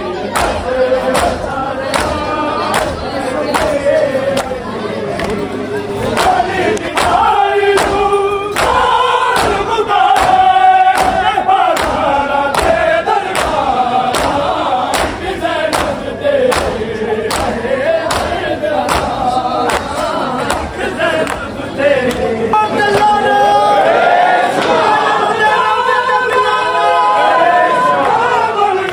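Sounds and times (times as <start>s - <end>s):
crowd chanting in unison: 0.0s - 28.9s
sharp chest-beating thumps: 7.0s - 19.9s.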